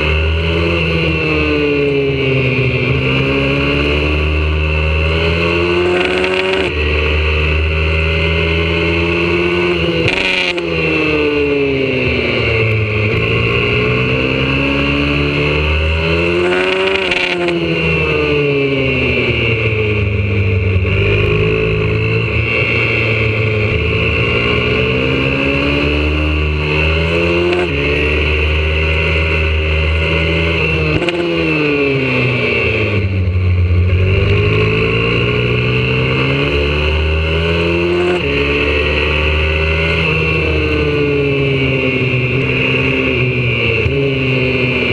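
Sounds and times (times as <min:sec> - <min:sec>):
pit bike engine accelerating: 0:00.0 - 0:44.9.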